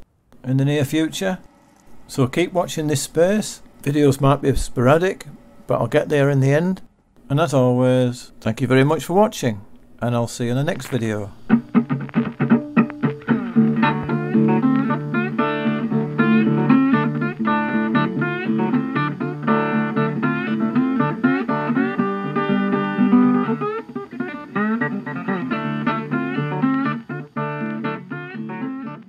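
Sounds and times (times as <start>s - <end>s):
guitar with quickly plucked notes: 11.4s - 29.0s.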